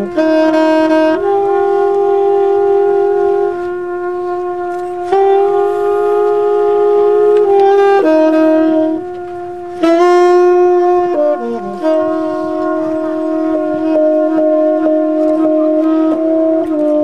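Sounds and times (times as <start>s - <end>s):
saxophone playing jazz: 0.0s - 17.0s
trumpet playing jazz: 0.0s - 17.0s.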